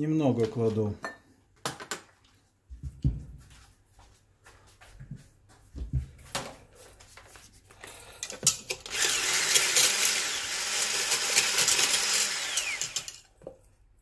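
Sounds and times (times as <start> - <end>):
electric hand blender whisking: 8.8 - 13.3.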